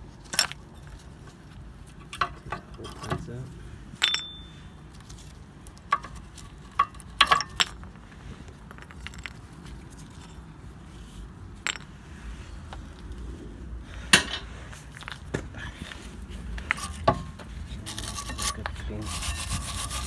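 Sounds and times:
metallic clinks and knocks: 4.0 - 7.9, 11.6 - 12.0.

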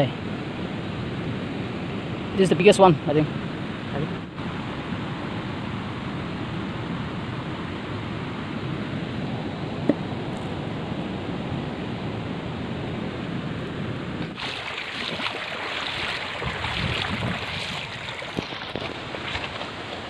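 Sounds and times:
stream rushing: 0.0 - 20.0
wind on microphone: 0.0 - 20.0
feet wading through stream: 14.2 - 20.0.

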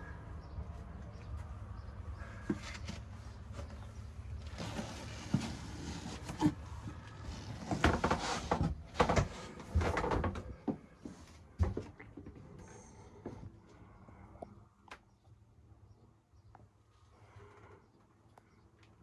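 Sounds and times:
knocks and clicks in wooden cabin: 6.4 - 15.1.

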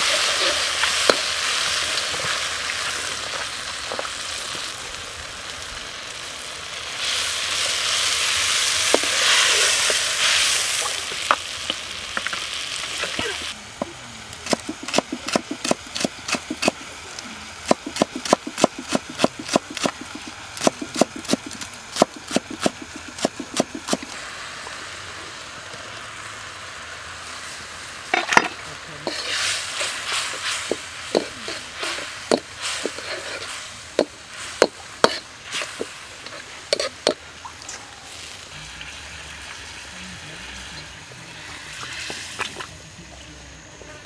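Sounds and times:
sauce frying and bubbling: 0.0 - 43.5
knife chopping on wooden board: 17.7 - 24.0.

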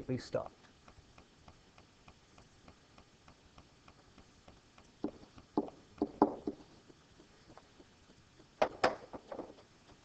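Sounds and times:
faint steady ticking: 0.0 - 8.6
stylus tapping on writing surface: 4.2 - 6.7.

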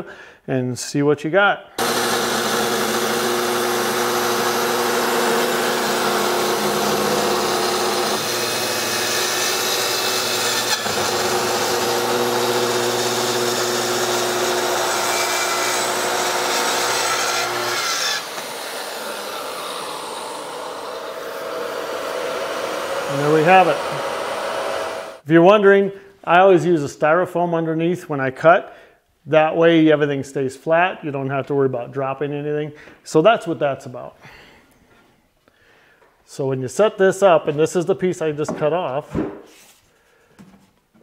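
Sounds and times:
dust extractor rushing: 1.8 - 25.2
track saw cutting wood: 1.8 - 25.2.

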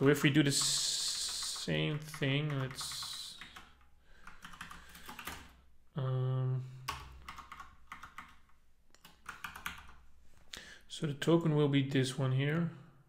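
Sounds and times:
computer keyboard typing: 0.0 - 5.6, 6.9 - 10.0.

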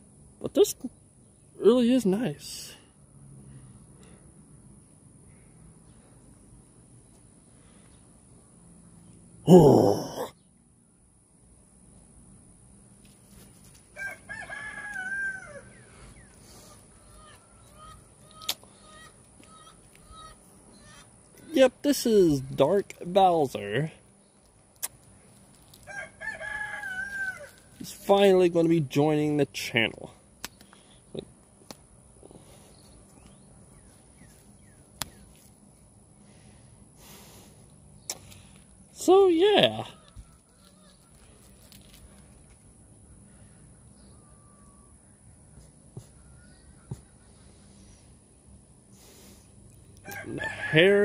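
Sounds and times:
rooster crowing: 13.9 - 15.8, 25.8 - 27.7, 44.1 - 45.1, 50.0 - 51.0
faint bird chirps: 43.0 - 48.4.

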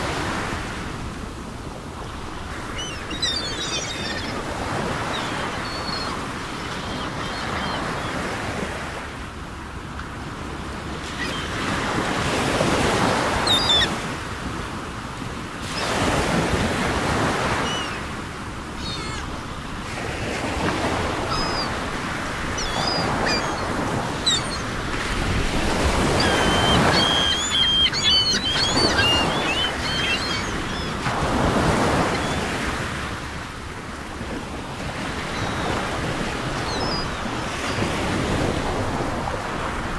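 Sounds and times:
ocean waves washing in: 0.0 - 39.9
faint bird chirps: 2.8 - 4.4, 5.0 - 8.1, 13.4 - 13.9, 17.6 - 18.0, 18.8 - 19.2, 21.3 - 21.8, 22.6 - 24.7, 26.1 - 31.0, 36.6 - 37.9.

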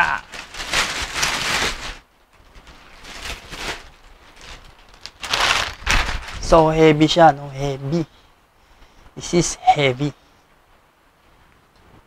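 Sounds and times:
plastic bag rustling and crinkling: 0.0 - 7.2.

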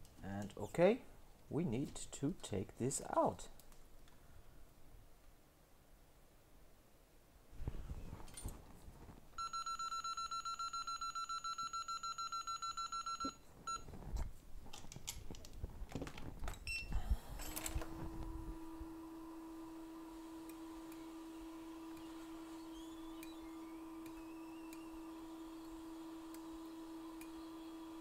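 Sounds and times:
hot air blower whine and hum: 16.9 - 28.0.

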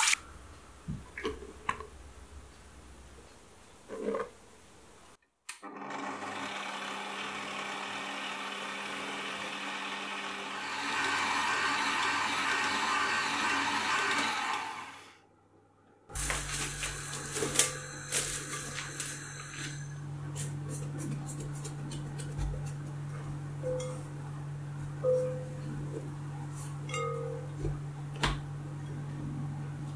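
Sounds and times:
stand mixer running: 5.6 - 15.0.

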